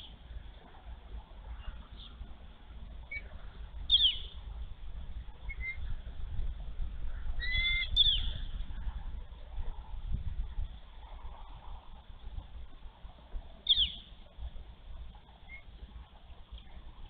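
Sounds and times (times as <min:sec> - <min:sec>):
steady low rumble: 0:00.0 - 0:17.0
eagle chirping calls: 0:03.9 - 0:04.4, 0:05.4 - 0:05.8, 0:07.4 - 0:08.5, 0:13.6 - 0:14.1, 0:15.4 - 0:15.7.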